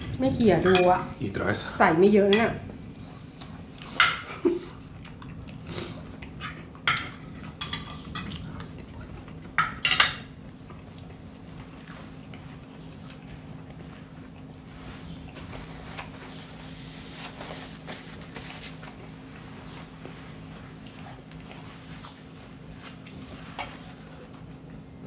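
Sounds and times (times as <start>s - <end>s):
low steady hum: 0.0s - 25.0s
cutlery clinking on plates: 0.6s - 1.0s, 6.4s - 8.4s, 9.6s - 10.3s, 23.5s - 23.9s.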